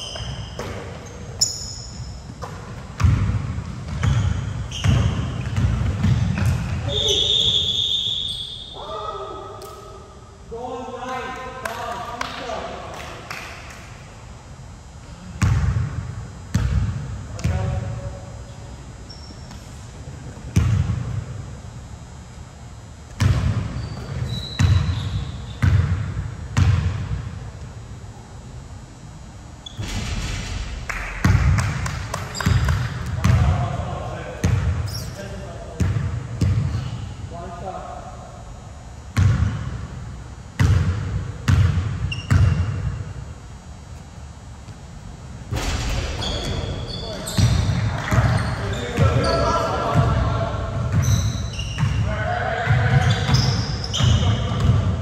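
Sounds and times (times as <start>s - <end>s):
sneaker squeaks: 0.0s - 9.3s, 19.0s - 19.9s, 23.1s - 26.0s, 29.6s - 30.0s, 32.1s - 33.5s, 34.4s - 37.0s, 41.6s - 43.2s, 45.9s - 55.0s
basketball bouncing in a hall: 0.0s - 10.0s, 14.8s - 18.4s, 19.0s - 27.6s, 29.6s - 37.3s, 38.9s - 55.0s
basketball bouncing on wooden floor: 2.4s - 6.8s, 40.6s - 42.8s, 46.2s - 49.2s, 52.7s - 55.0s.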